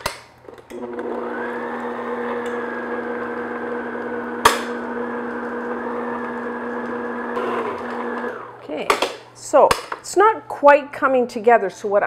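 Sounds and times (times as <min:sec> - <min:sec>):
stand mixer motor running: 0:00.8 - 0:08.6.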